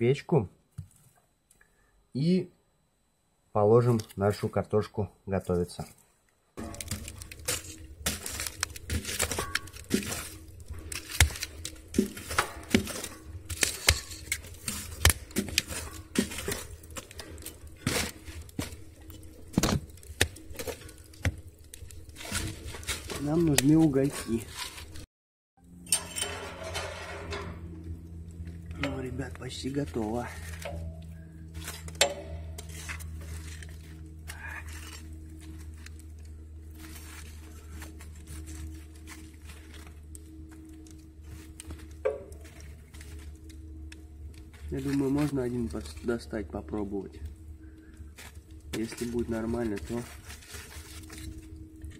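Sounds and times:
low steady hum: 0:00.0 - 0:51.9
low steady rumble: 0:06.6 - 0:25.0, 0:25.6 - 0:51.9
wood fire crackling: 0:06.6 - 0:25.1, 0:26.3 - 0:51.9
metal poker knocking and scraping: 0:10.9 - 0:18.2
sharp metallic clink: 0:25.8 - 0:27.5.

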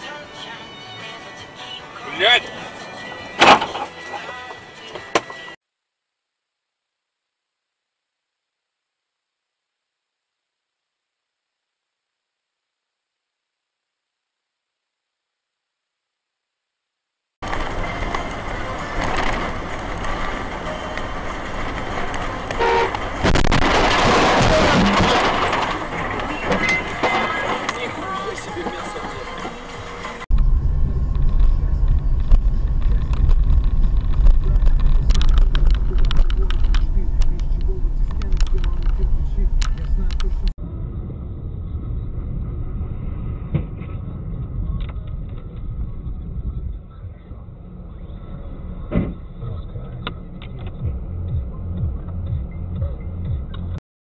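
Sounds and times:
road traffic noise: 0:00.0 - 0:05.6, 0:17.4 - 0:53.8
loud burst of noise: 0:17.4 - 0:27.7
car horn honk: 0:22.5 - 0:23.2.

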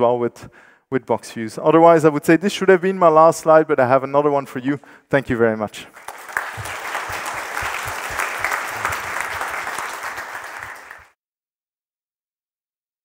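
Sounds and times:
audience applauding: 0:05.9 - 0:11.2.

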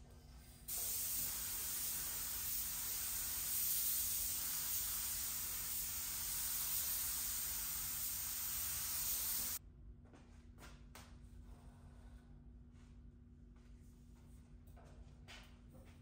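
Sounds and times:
paint spray gun hissing: 0:00.7 - 0:09.6.

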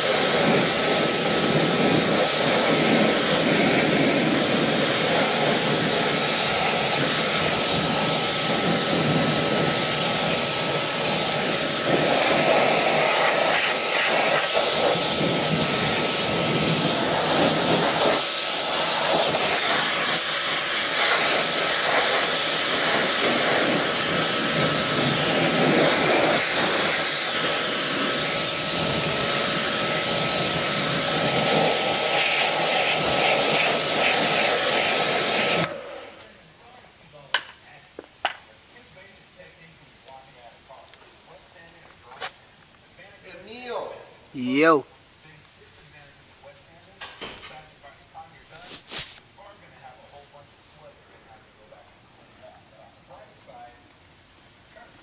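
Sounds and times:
pressure washer spraying water: 0:00.0 - 0:36.2
faint steady whine: 0:00.0 - 0:48.6.

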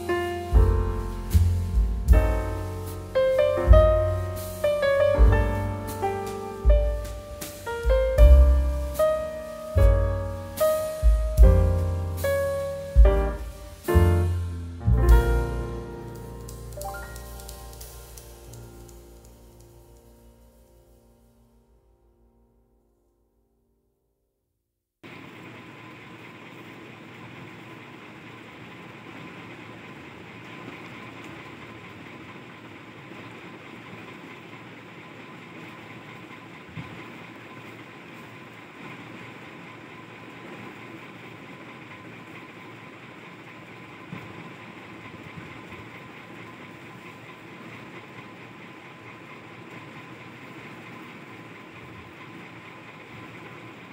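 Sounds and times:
machine hum and hiss: 0:00.0 - 0:21.7, 0:25.0 - 0:53.9.

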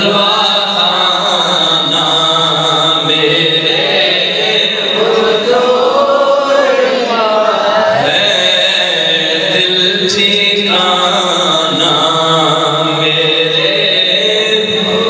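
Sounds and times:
man chanting through loudspeakers: 0:00.0 - 0:15.0
steady high tone: 0:03.1 - 0:08.8.

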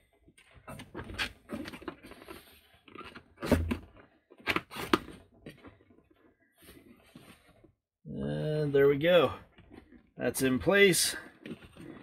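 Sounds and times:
rubber rubbing and scraping on plastic: 0:08.9 - 0:12.0.

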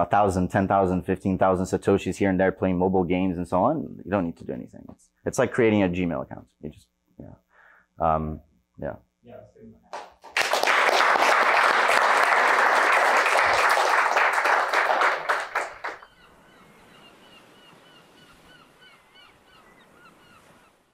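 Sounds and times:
audience applauding: 0:10.0 - 0:16.0.

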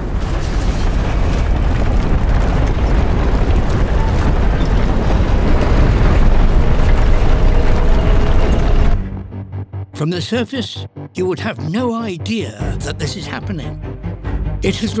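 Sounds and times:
trawl net rumbling on seabed: 0:00.0 - 0:09.0.

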